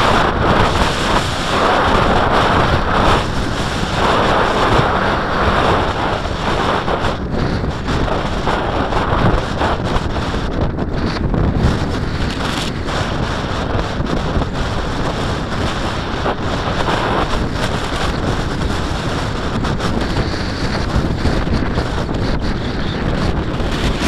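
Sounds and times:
wind rushing over microphone: 0.0s - 24.0s.

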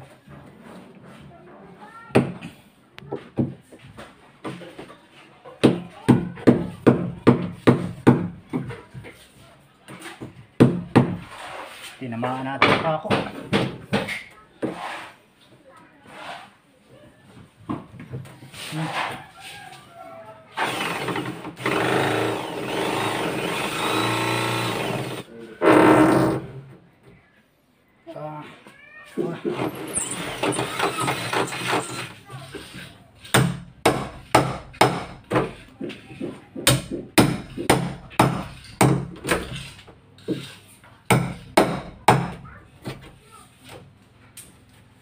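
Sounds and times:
drill with hole saw boring wood: 20.6s - 26.4s, 29.7s - 32.1s.

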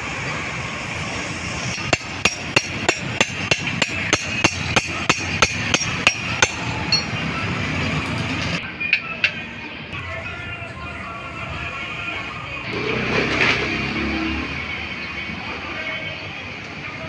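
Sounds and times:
metal tapping clinks: 1.8s - 7.2s.

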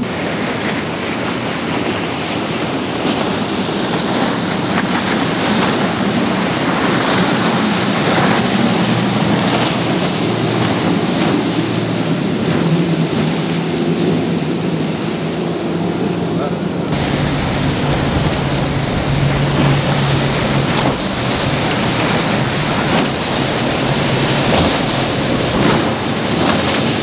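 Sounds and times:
motorboat engines droning: 0.0s - 27.0s
waves: 0.0s - 27.0s
wind noise on microphone: 16.8s - 27.0s.

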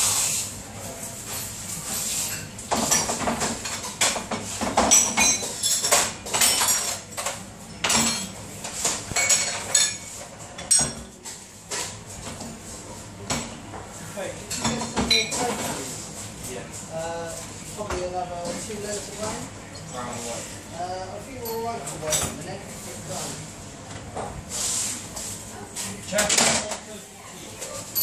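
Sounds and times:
crockery clattering and clinking: 2.2s - 12.4s, 14.5s - 15.8s.

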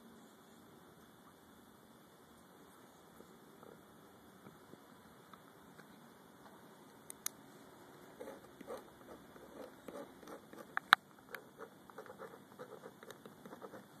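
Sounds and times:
pen scratching on paper: 8.2s - 14.0s.

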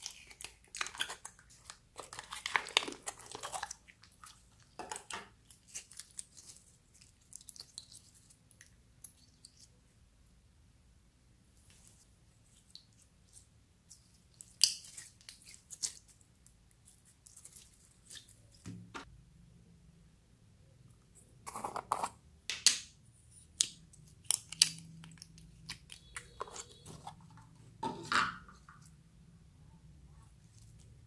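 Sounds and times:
slime crackling: 0.0s - 9.5s
slime squishing and clicking: 23.5s - 27.0s.

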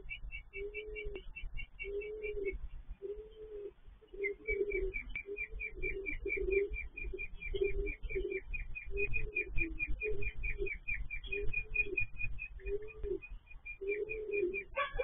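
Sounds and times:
pigeons cooing: 0.0s - 15.0s
small bird chirping: 0.0s - 15.0s.

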